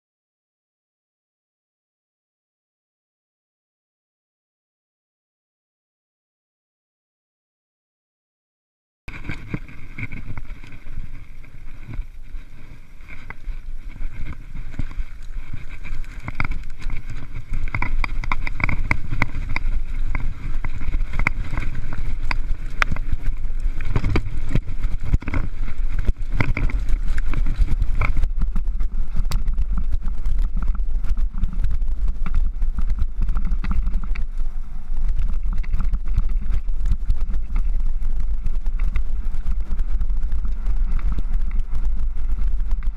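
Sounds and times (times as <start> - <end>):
bike rattling over stones: 9.1 - 42.9
wind rumble on microphone: 9.1 - 42.9.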